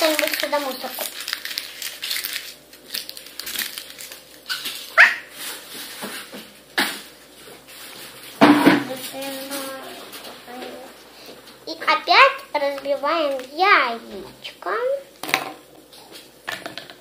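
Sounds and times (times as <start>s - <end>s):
foil wrappers crinkling: 0.0s - 10.9s.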